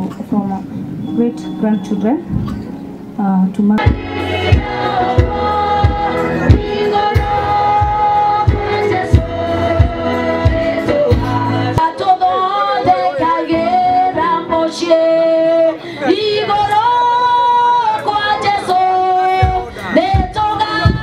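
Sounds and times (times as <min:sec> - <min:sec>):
steady drum beat: 0:03.8 - 0:11.8
choir singing: 0:03.8 - 0:17.1.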